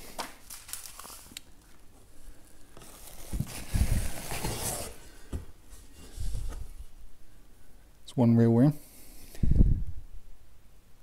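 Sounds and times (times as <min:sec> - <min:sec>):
bubble wrap and cardboard rustling: 0:00.0 - 0:07.0.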